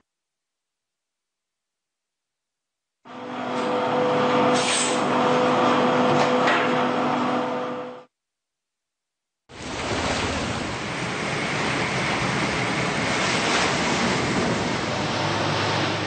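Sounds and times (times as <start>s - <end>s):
sea waves rushing: 9.5s - 16.0s
wind: 9.5s - 16.0s.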